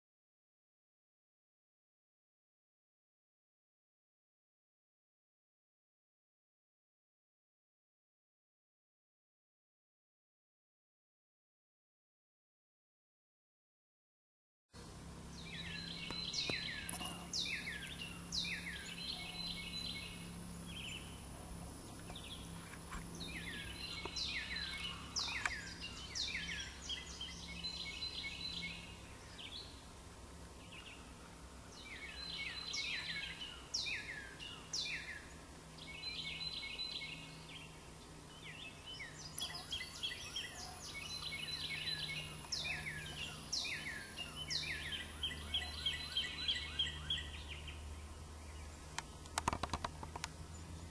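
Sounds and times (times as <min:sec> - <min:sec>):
songbirds singing: 0:14.8 - 0:50.9
steady low hum: 0:14.8 - 0:50.9.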